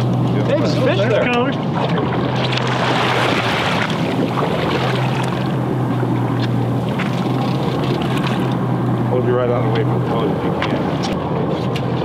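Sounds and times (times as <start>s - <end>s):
boat engine humming: 0.0s - 12.0s
wind and water hiss: 1.2s - 12.0s.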